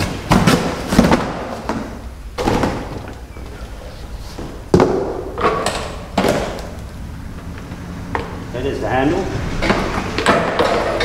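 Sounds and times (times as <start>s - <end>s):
cardboard thumps and knocks: 0.0s - 3.1s.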